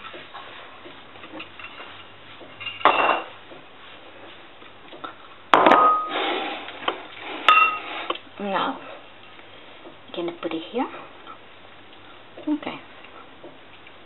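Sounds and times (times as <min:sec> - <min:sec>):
ceramic bowls clinking: 0:01.3 - 0:03.3, 0:07.5 - 0:07.9.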